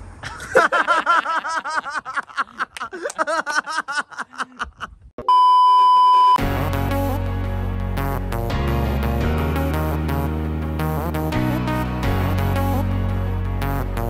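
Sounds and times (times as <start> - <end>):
man laughing: 0.2 - 5.1
test tone beep: 5.2 - 6.4
background music: 6.4 - 14.0.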